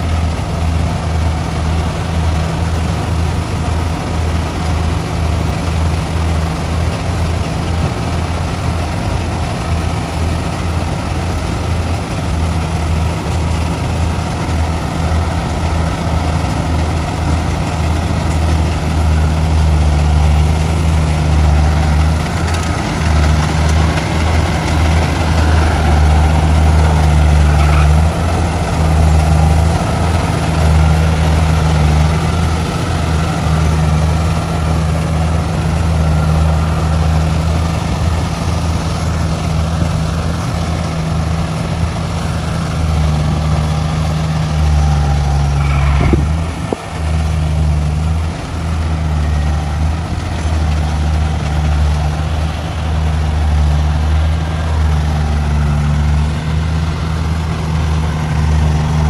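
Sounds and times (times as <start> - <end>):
harvester engine humming: 0.0 - 59.0.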